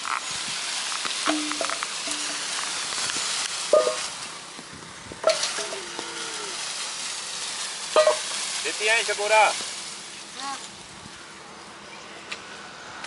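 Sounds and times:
leaves and branches rustling: 0.0 - 13.0
sharp knocks of poles: 1.2 - 2.5, 5.2 - 6.0.

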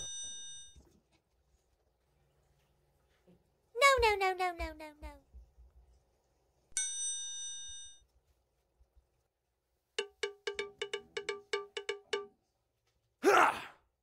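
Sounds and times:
chime: 0.0 - 0.8, 6.8 - 8.0
quick cowbell-like knocks: 10.0 - 12.4.

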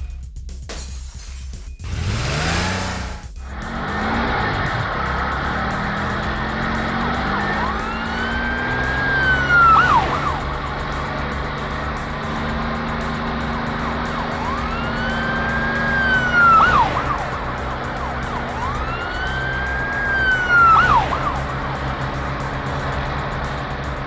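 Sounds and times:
low vehicle hum: 1.8 - 24.0
cartoon police siren wailing: 3.6 - 22.4.

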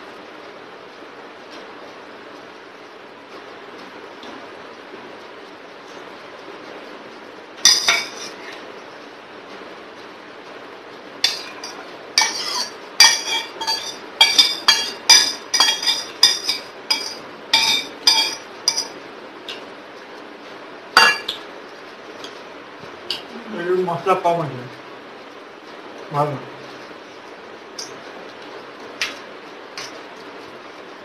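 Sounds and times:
metal bowl clinking: 7.7 - 8.4, 11.2 - 19.0, 21.0 - 21.4.

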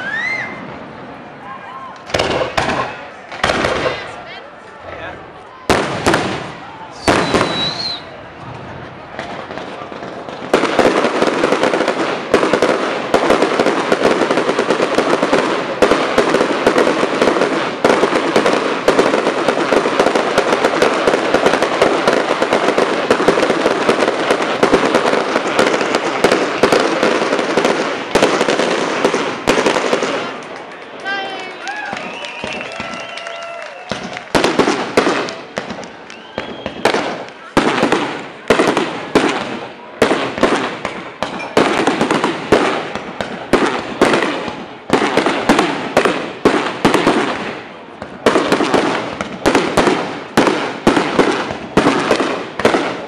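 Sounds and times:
firework shells bursting: 2.0 - 4.1
rapid crackling and bangs: 2.0 - 4.1, 8.5 - 30.6, 33.9 - 53.0.

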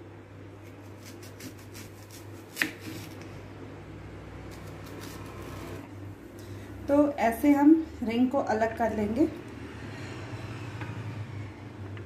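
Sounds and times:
knife slicing onion: 0.6 - 3.2, 4.4 - 5.8.

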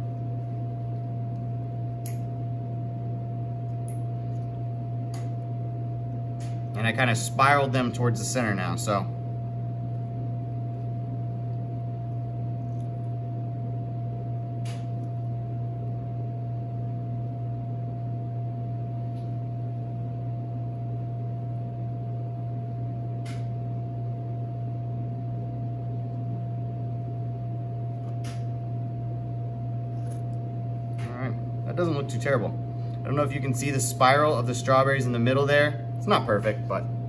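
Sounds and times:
kitchen equipment humming: 0.0 - 16.7, 25.7 - 37.0
faint steady whine: 0.0 - 37.0.

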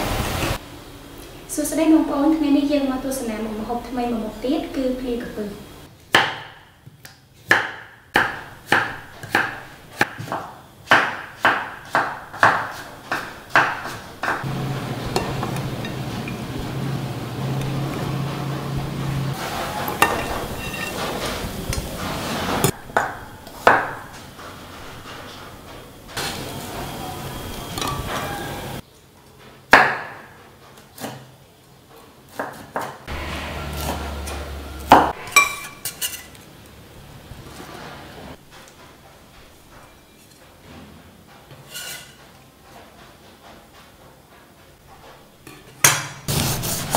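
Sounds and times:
knife chopping on wooden board: 7.5 - 14.5.

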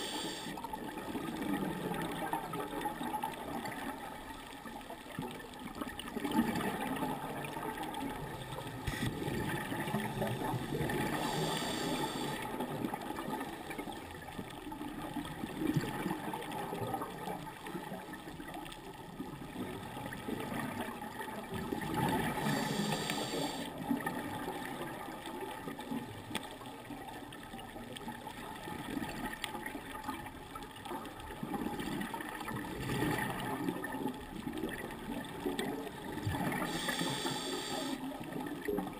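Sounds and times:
regulator hissing inhalation: 0.0 - 0.5, 10.4 - 12.4, 22.4 - 23.7, 36.6 - 38.0
exhaled bubbles gurgling: 0.0 - 38.9.

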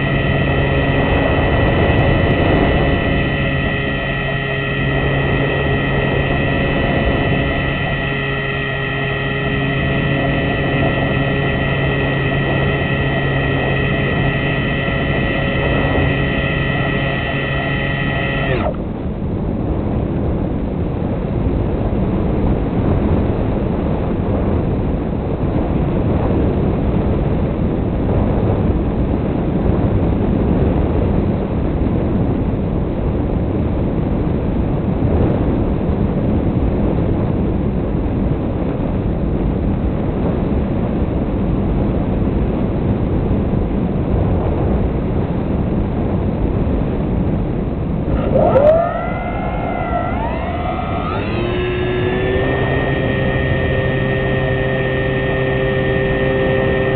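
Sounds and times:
model aircraft motor and propeller: 0.0 - 18.9, 48.1 - 56.9.

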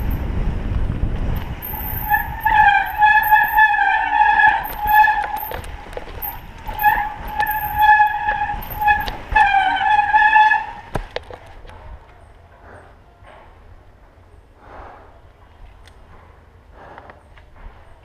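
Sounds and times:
bike rattling: 0.0 - 12.0
bike disc brakes squealing: 1.4 - 11.0
bike clicks and knocks: 4.6 - 12.2.

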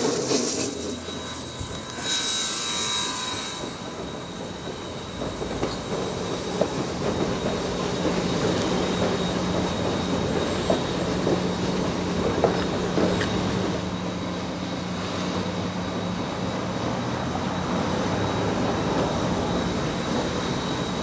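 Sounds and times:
train wheels clicking over rail joints: 0.0 - 13.9
train rumble: 0.0 - 21.0.

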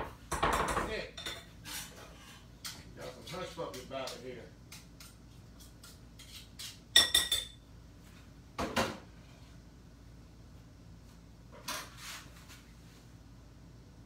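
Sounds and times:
utensil clinking on mixing bowl: 6.9 - 7.6.

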